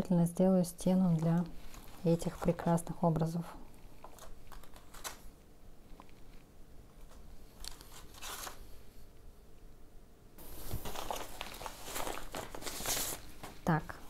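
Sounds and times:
paper rustling and crinkling: 1.1 - 2.8, 4.0 - 5.3, 7.0 - 8.7, 10.4 - 13.7.

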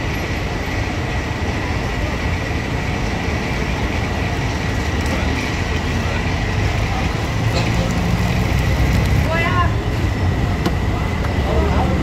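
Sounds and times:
street traffic rumble: 0.0 - 12.0.

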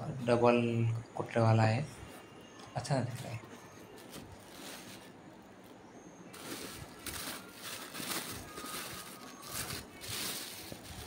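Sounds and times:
plastic packaging crinkling: 3.2 - 11.0.

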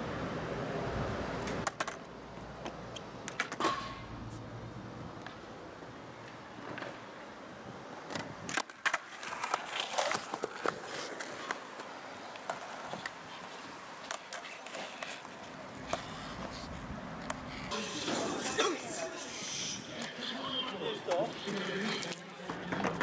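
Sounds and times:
skateboard wheels rolling on concrete: 0.0 - 23.0
skateboard clacks and knocks: 1.4 - 4.1, 22.4 - 23.0.

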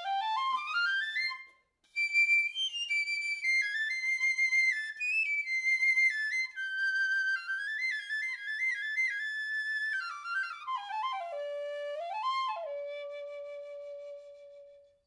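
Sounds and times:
piccolo melody: 0.0 - 4.6, 5.2 - 14.9.

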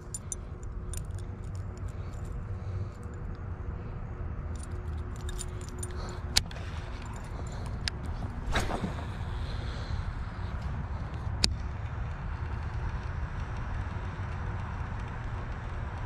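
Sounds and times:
light metallic clinks: 0.0 - 3.4, 4.5 - 8.6
low rumble: 0.0 - 16.0.

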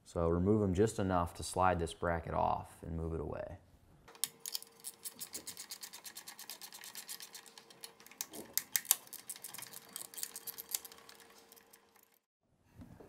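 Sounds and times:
wrench clicking rapidly: 4.4 - 12.1.

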